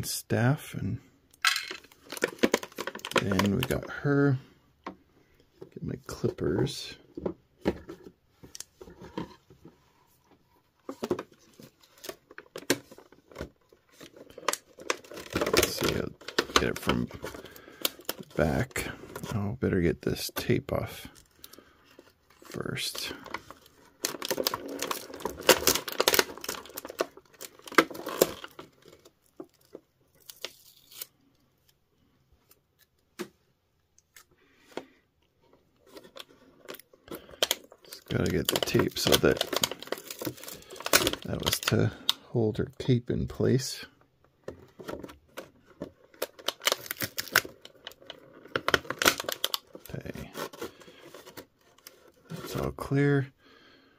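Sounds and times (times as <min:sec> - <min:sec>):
plastic packaging crinkling: 0:01.4 - 0:04.0, 0:10.9 - 0:19.4, 0:22.4 - 0:31.4, 0:35.8 - 0:42.2, 0:44.8 - 0:52.9
plastic tray clicks and crinkles: 0:01.5 - 0:03.9
tape peeling off plastic: 0:29.5 - 0:31.2.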